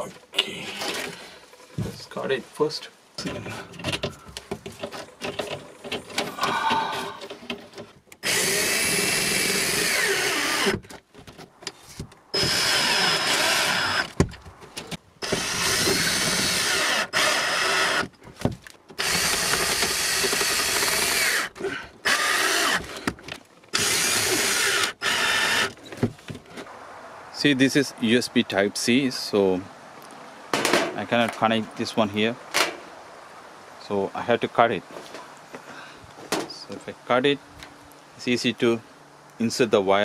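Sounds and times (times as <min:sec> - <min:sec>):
cordless drill driving screws: 0:08.2 - 0:10.8, 0:12.4 - 0:14.2, 0:15.2 - 0:18.1, 0:19.0 - 0:23.1, 0:23.7 - 0:25.8.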